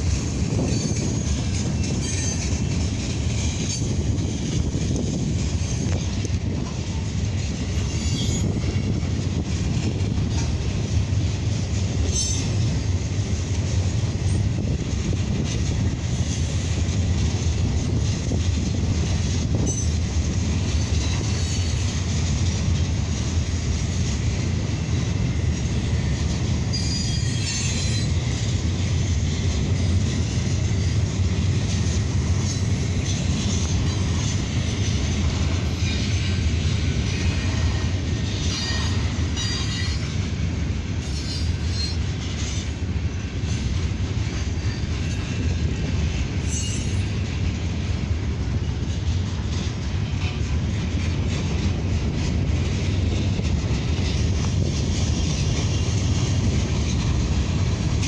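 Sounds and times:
freight cars rumbling on rails: 0:00.0 - 0:58.0
high-pitched wheel squeals: 0:07.8 - 0:08.9, 0:21.0 - 0:22.0, 0:26.7 - 0:28.2, 0:41.0 - 0:42.1, 0:46.4 - 0:47.2.

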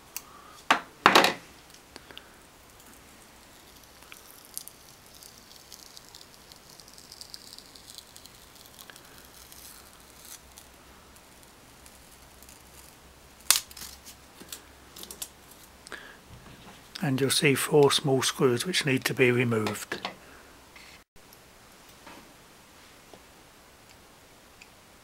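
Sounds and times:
sticky label peeling: 0:03.5 - 0:15.3.

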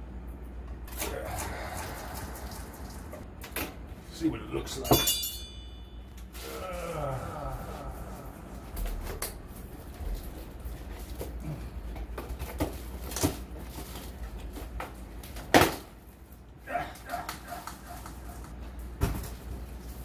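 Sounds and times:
whining vocal noises: 0:00.8 - 0:03.2, 0:06.3 - 0:10.4, 0:16.6 - 0:18.6
cardboard and plastic rustling: 0:07.8 - 0:15.9.

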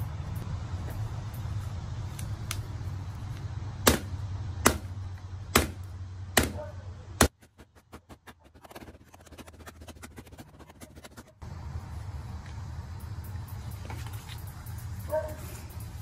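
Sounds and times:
steady low rumble: 0:00.0 - 0:16.0
rubber mallet pounding paper: 0:07.2 - 0:11.3.

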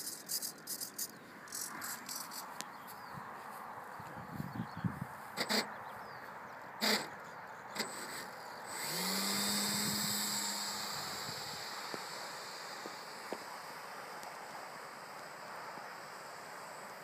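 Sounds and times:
model plane motor buzzing: 0:07.8 - 0:17.0.

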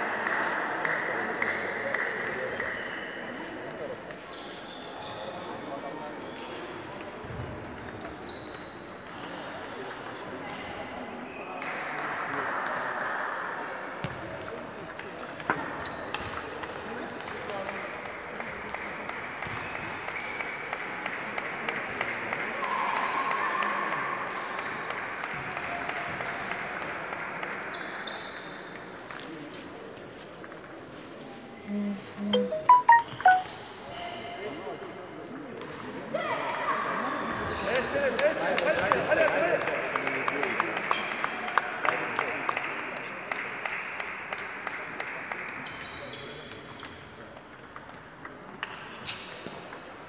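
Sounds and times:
sports hall ambience: 0:00.0 - 0:50.0
shoe squeaks on court floor: 0:04.2 - 0:08.8, 0:29.3 - 0:31.7, 0:47.6 - 0:49.6
sports hall din: 0:31.6 - 0:33.8.

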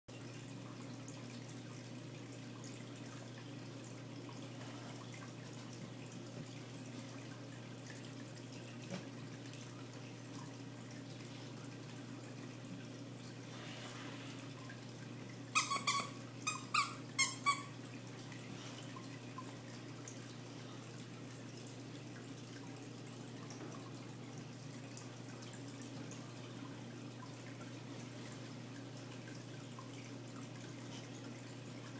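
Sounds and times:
aquarium pump humming: 0:00.1 - 0:31.9
circulating water: 0:00.1 - 0:31.9
short high-pitched squeaks: 0:15.6 - 0:17.7.

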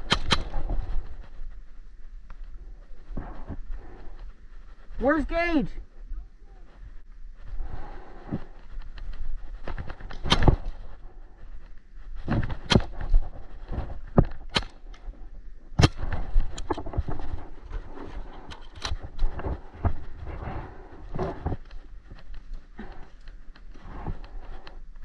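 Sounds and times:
paintball markers firing: 0:00.0 - 0:00.6
rustling and handling noise: 0:00.0 - 0:25.0.

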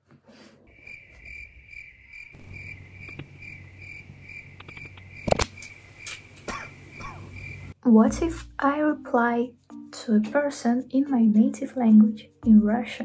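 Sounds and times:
sharp click: 0:04.6 - 0:06.3.

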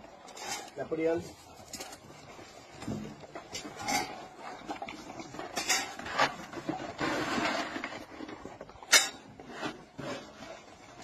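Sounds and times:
metal bowls clinking: 0:05.4 - 0:06.0, 0:08.8 - 0:09.3.

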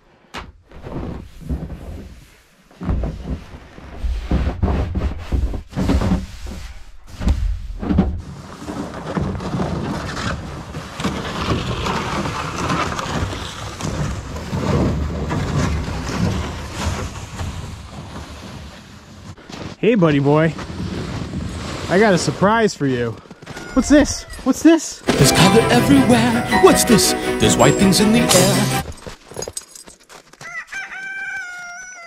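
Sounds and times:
plastic sled dragged over snow: 0:00.8 - 0:23.3.

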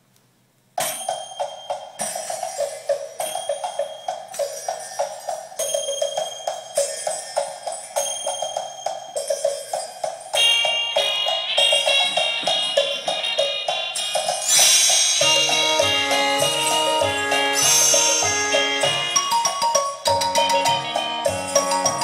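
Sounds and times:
percussive beat: 0:00.8 - 0:22.0
music through speakers: 0:09.6 - 0:22.0.

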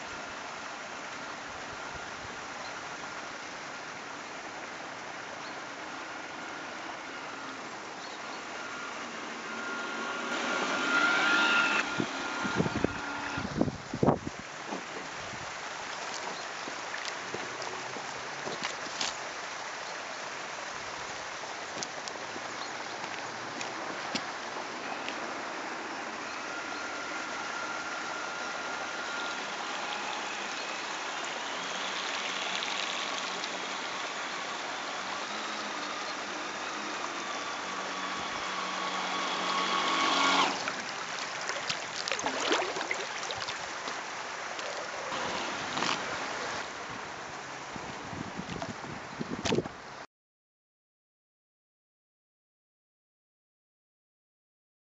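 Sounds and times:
model boat motor whine: 0:00.0 - 0:15.8, 0:20.3 - 0:48.8
small waves lapping: 0:00.0 - 0:48.9
fountain water rushing: 0:00.0 - 0:50.0
wind on microphone: 0:11.6 - 0:15.6, 0:47.7 - 0:49.8.

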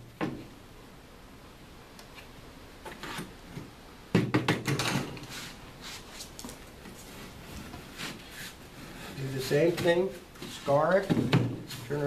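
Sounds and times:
tools tapping and scraping drywall: 0:02.8 - 0:05.3, 0:06.8 - 0:11.9.

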